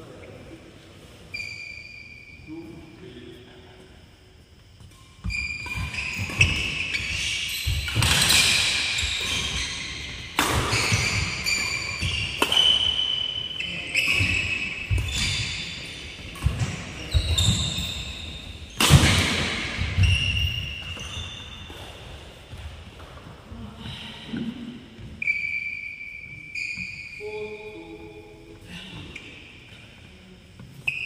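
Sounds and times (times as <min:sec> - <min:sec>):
shoes squeaking on court floor: 0:01.2 - 0:02.4, 0:04.6 - 0:23.2, 0:25.0 - 0:27.6
rackets striking shuttlecock: 0:10.2 - 0:13.3.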